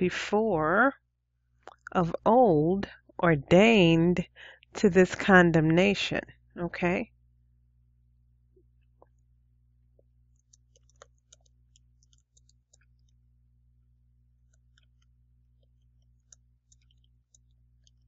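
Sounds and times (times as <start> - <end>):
low steady hum: 0.0 - 18.0
keyboard typing: 10.3 - 13.2, 14.4 - 18.0.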